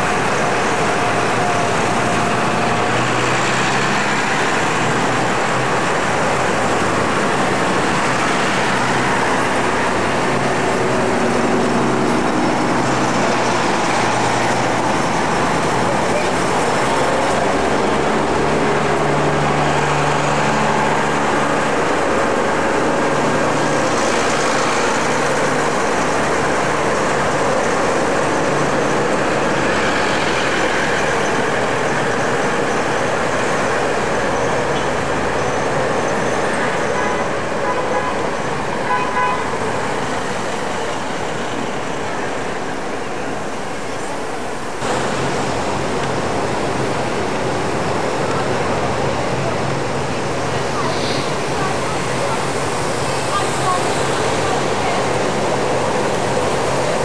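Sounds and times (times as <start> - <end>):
cars driving past: 0.0 - 57.0
voices talking: 48.0 - 57.0.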